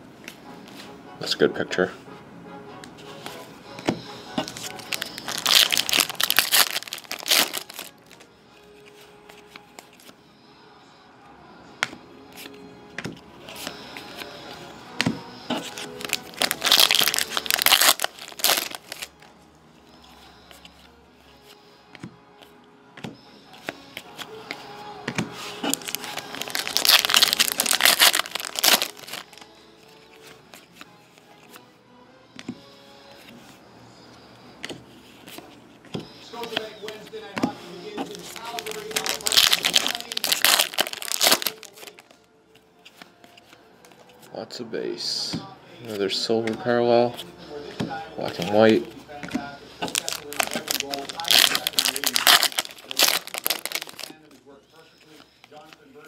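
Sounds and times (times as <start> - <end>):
foil pack crinkling and tearing: 4.4 - 8.2, 15.5 - 19.1, 25.5 - 29.5, 38.0 - 42.2, 49.8 - 54.3.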